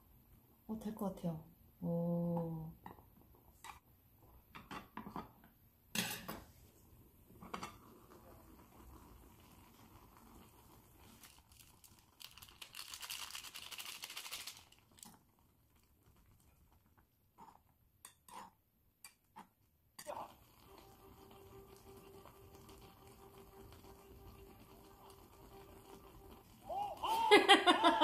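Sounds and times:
packet crinkling and rustling: 11.0s - 16.4s.

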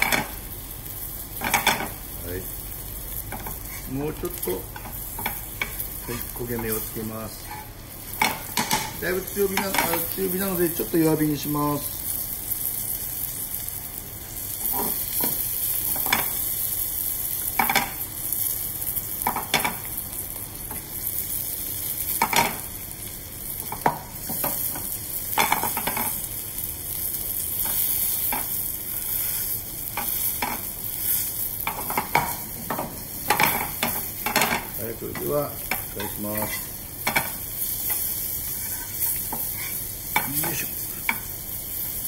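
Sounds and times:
fish sizzling in frying pan: 0.0s - 42.0s
metal spatula scraping pan: 38.4s - 39.8s.

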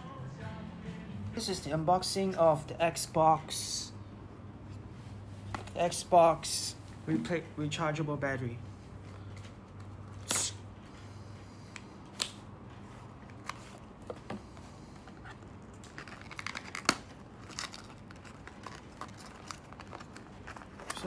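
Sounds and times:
sharp snap: 10.2s - 10.6s, 12.2s - 12.4s.

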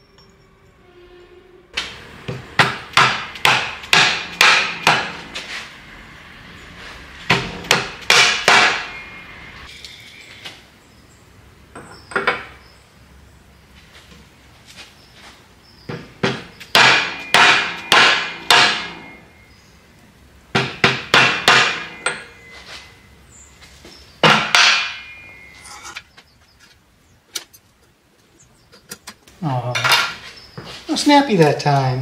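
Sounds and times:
hammer striking steel: 1.8s - 5.2s, 7.3s - 9.0s, 16.7s - 19.2s, 20.6s - 22.5s, 24.2s - 26.0s.

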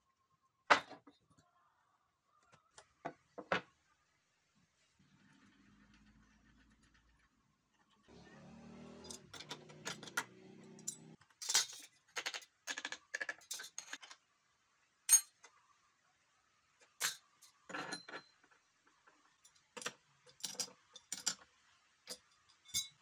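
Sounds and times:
metal tools clanking on steel: 9.1s - 11.9s, 22.1s - 23.0s.

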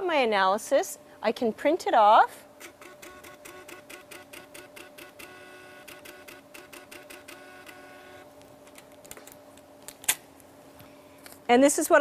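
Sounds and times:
steady hum: 0.0s - 12.0s
receipt printer clicking: 2.6s - 8.9s.

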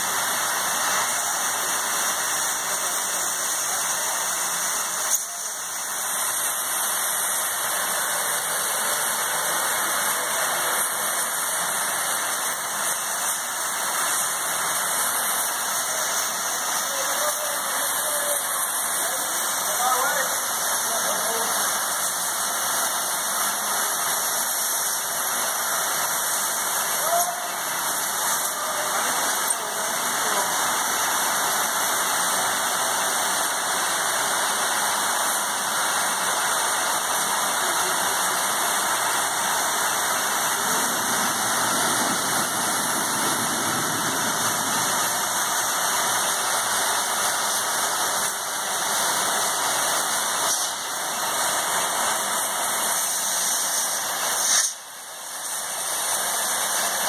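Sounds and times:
loud hiss of escaping air: 21.6s - 57.0s.

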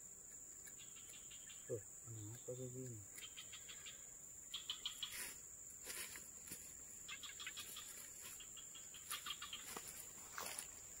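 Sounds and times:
bird chirps: 0.0s - 5.5s, 6.6s - 10.2s
insects droning: 0.0s - 11.0s.

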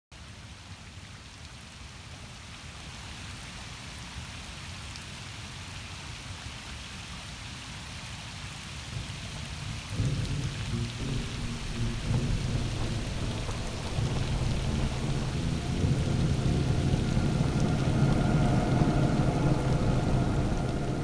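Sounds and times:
rain pattering on water: 0.2s - 21.0s
low rumble of thunder: 8.9s - 21.0s.

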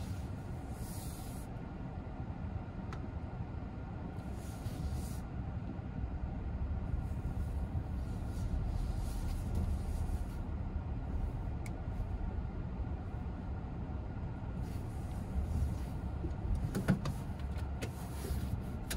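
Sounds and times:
engine and tyre rumble: 0.0s - 18.9s
faint tick: 11.6s - 11.8s.

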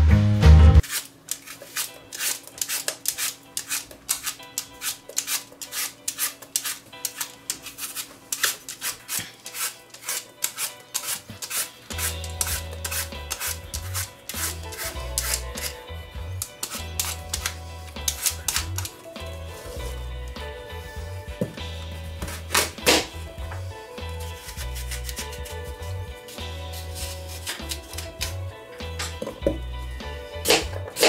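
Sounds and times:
background music with a beat: 0.0s - 0.8s, 11.9s - 31.0s
peeler scraping apple skin: 0.8s - 20.1s, 24.0s - 28.4s.

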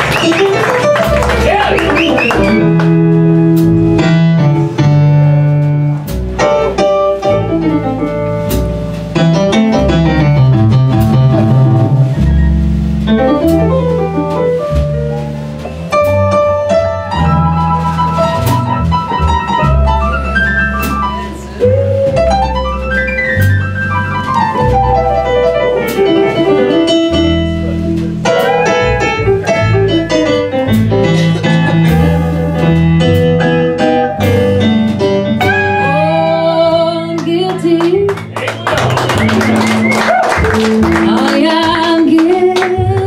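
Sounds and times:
live band instrumental music: 0.0s - 43.0s.

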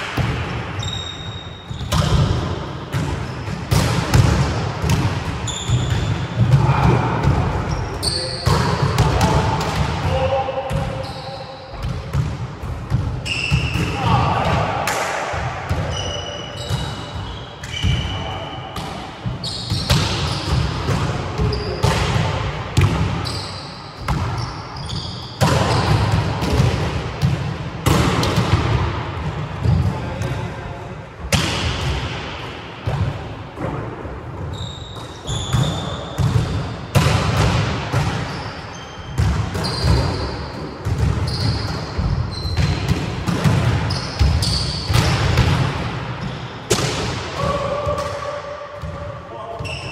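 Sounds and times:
sneaker squeaks: 0.8s - 2.2s, 5.4s - 6.7s, 7.6s - 9.2s, 10.1s - 12.3s, 13.2s - 14.1s, 15.7s - 20.7s, 21.4s - 22.0s, 23.2s - 26.0s, 34.4s - 36.9s, 38.1s - 42.9s, 43.8s - 45.0s, 46.2s - 46.8s, 48.8s - 49.9s
volleyballs smacking and bouncing: 1.7s - 11.0s, 11.7s - 18.2s, 18.8s - 23.3s, 24.0s - 24.6s, 25.4s - 30.6s, 31.2s - 38.4s, 39.1s - 49.7s.

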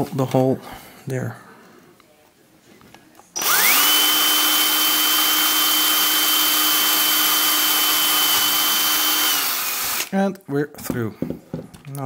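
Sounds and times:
cordless drill whining: 3.4s - 10.1s.

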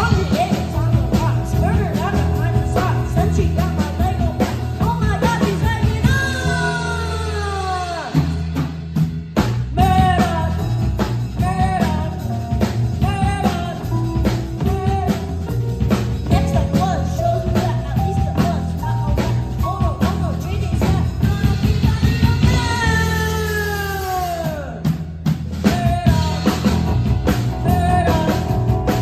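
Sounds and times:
child singing: 0.0s - 8.3s, 16.3s - 24.7s
rock band playing: 0.0s - 29.0s.

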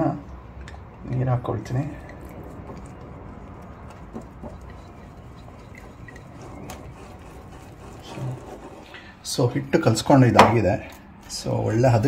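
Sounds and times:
fingers squishing batter: 0.5s - 9.0s
small squeaks: 1.9s - 9.0s.

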